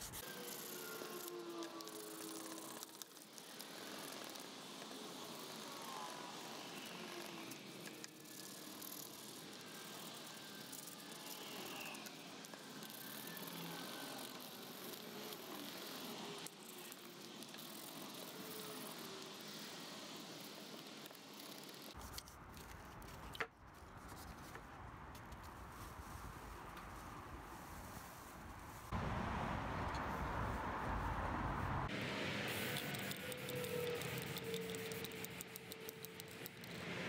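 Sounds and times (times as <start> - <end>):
sandpaper rasping on metal: 0.0 - 22.2.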